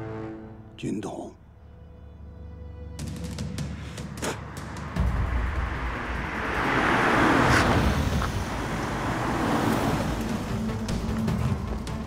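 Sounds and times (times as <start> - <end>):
car passing by: 3.6 - 12.0.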